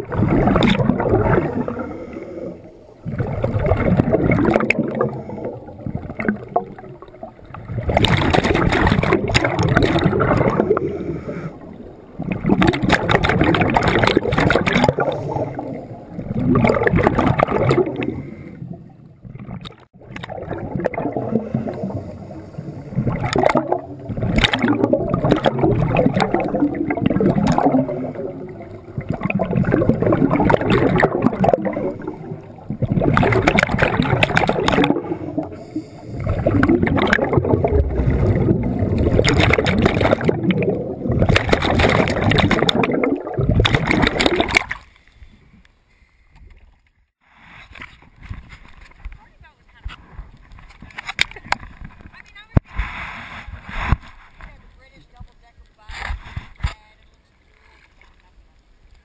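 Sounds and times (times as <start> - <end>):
regulator bubbles gurgling underwater: 0.0 - 44.8.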